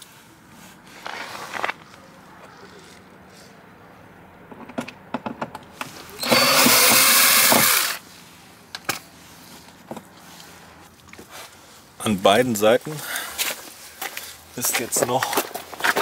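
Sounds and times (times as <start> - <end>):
drill clicks: 6.2 - 8.0
power drill running: 6.2 - 8.0.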